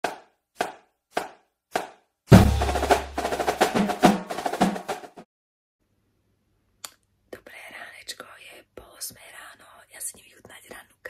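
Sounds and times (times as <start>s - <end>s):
percussion-driven drum music: 0.0s - 5.2s
deep bass hit: 2.3s - 3.2s.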